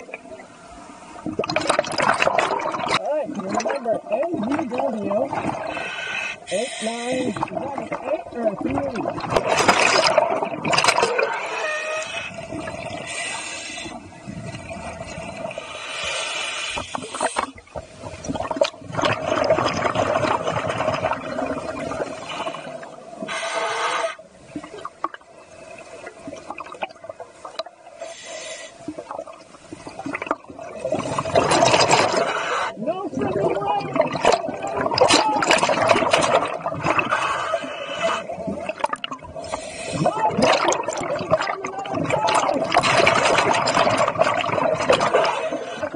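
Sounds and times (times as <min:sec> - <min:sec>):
steady underwater hum: 0:00.0 - 0:45.9
bubbling exhalations: 0:01.2 - 0:15.7, 0:16.7 - 0:23.4, 0:28.9 - 0:45.9
diver breathing through regulator: 0:05.4 - 0:07.6, 0:11.2 - 0:14.1, 0:15.5 - 0:17.6, 0:22.0 - 0:24.3, 0:28.0 - 0:29.0, 0:32.0 - 0:32.8, 0:37.0 - 0:38.4, 0:39.4 - 0:40.1.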